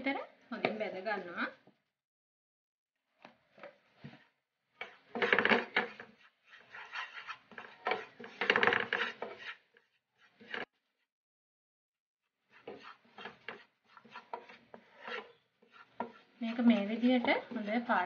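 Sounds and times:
spoon scraping frying pan: 4.8s - 10.7s, 12.4s - 18.0s.

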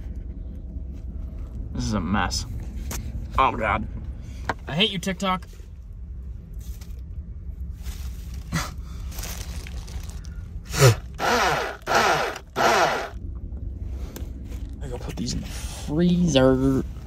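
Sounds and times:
steady low hum: 0.0s - 17.0s
blender grinding: 10.7s - 13.2s.

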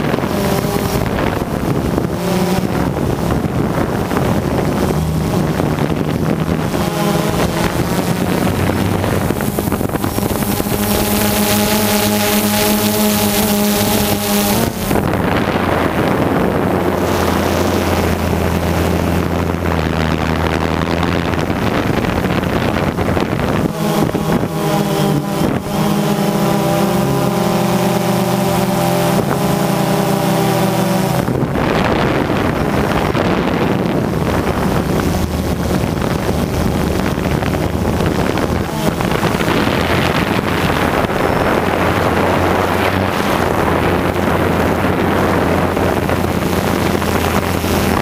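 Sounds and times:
aircraft motors and propellers: 0.0s - 48.0s
wind rushing over microphone: 0.0s - 48.0s.

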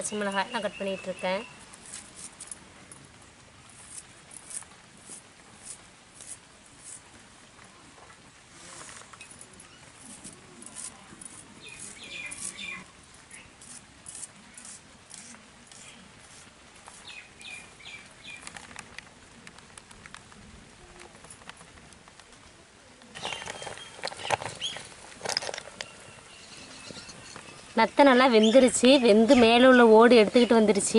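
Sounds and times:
birds chirping: 0.0s - 1.7s, 11.6s - 13.6s, 17.0s - 18.6s, 23.1s - 30.8s
metal ladle scraping clay pot: 23.2s - 29.6s.

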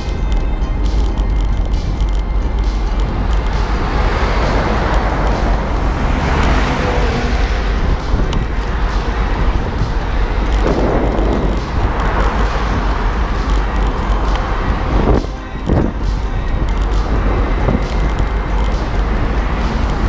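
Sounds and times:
road traffic passing: 0.0s - 20.0s
wind buffeting microphone: 1.6s - 20.0s
car overtaking close by: 3.0s - 16.0s.

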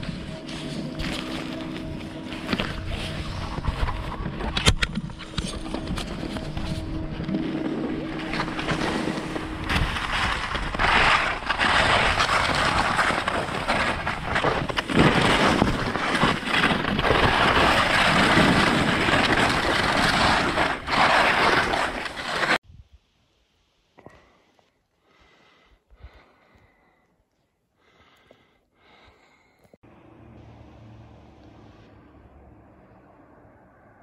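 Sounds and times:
skis scraping through snow: 0.0s - 4.4s, 5.2s - 22.6s.

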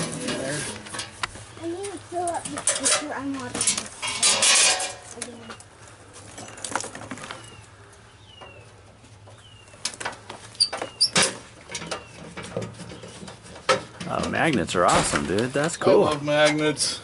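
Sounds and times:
falling bird chirps: 10.6s - 13.4s.

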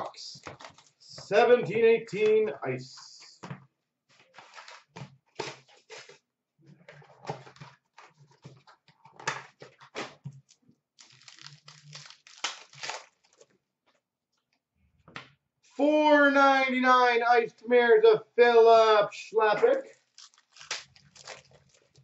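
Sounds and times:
wrappers rustling and ripping: 11.0s - 13.5s, 19.8s - 22.0s.

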